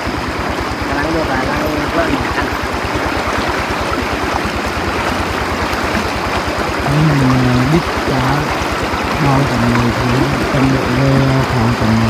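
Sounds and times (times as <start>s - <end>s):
stream water running: 0.0s - 12.0s
low held tone: 6.8s - 8.5s, 9.2s - 12.0s.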